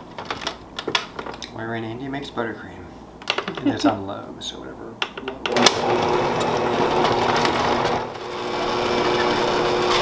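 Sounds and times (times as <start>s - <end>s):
stand mixer motor running: 5.6s - 10.0s.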